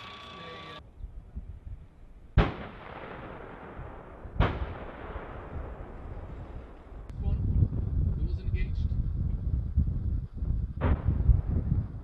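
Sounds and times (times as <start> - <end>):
heavy gun blasts with echo: 2.4 - 6.8.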